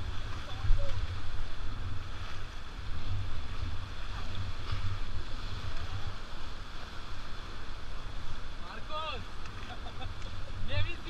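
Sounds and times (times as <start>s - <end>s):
rushing river water: 0.0s - 11.0s
wind buffeting microphone: 0.0s - 11.0s.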